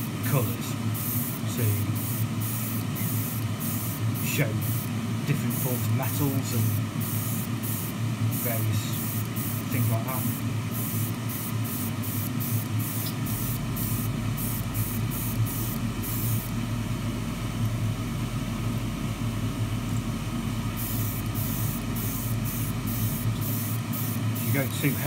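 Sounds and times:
steady low hum: 0:00.0 - 0:25.0
airbrush spraying hiss: 0:00.9 - 0:16.6, 0:20.8 - 0:25.0.

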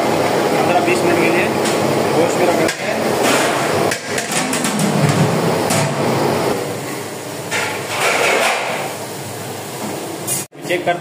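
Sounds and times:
gas burner flames: 0:00.0 - 0:10.6
metal pot lid and ladle clatter: 0:07.5 - 0:08.9.

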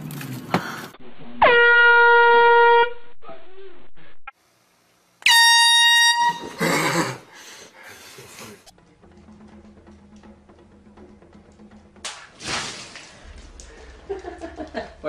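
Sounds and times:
air horn blasts: 0:01.4 - 0:03.0, 0:05.2 - 0:06.6.

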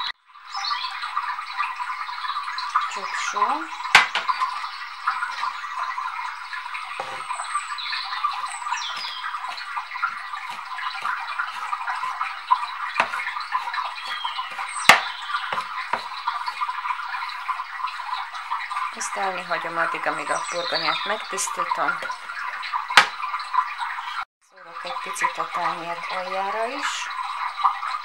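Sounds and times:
knife chopping on wooden board: 0:04.0 - 0:04.3, 0:07.0 - 0:07.2, 0:13.0 - 0:16.1.

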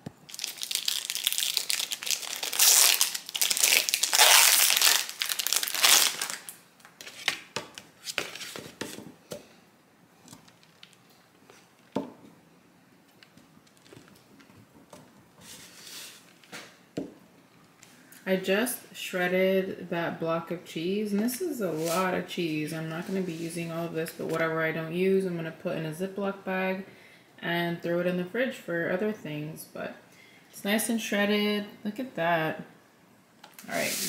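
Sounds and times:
plastic wrapping crinkling: 0:00.3 - 0:08.6, 0:10.4 - 0:11.9.

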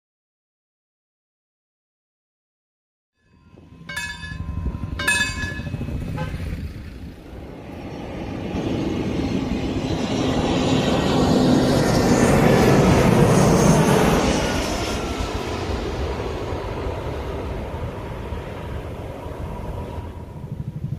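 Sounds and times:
short ringing strikes: 0:03.2 - 0:06.3
jet airliner taking off: 0:03.6 - 0:20.9.

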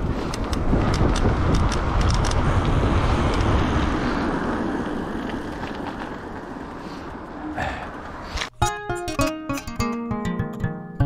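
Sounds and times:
wind rushing over microphone: 0:00.0 - 0:08.5
bike tyres rolling on asphalt: 0:00.0 - 0:08.6.

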